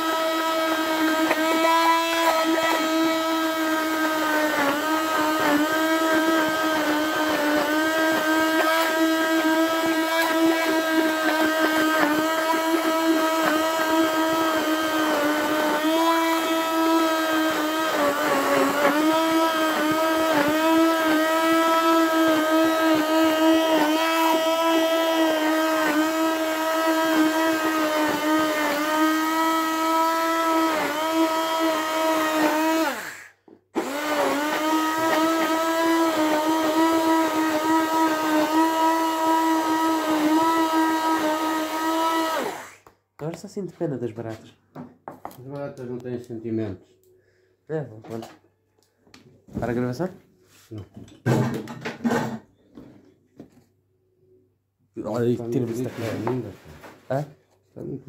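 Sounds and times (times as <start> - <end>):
stick blender motor whine: 0.0 - 42.9.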